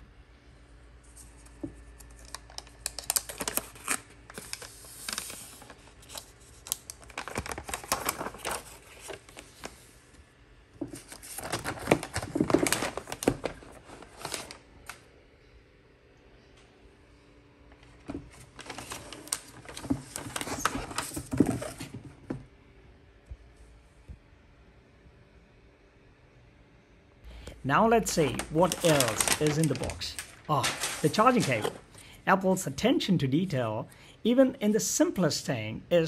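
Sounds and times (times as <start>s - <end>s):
plastic film peeling and crackling: 1.2s - 9.9s, 10.9s - 15.0s, 17.7s - 21.9s, 28.1s - 31.9s.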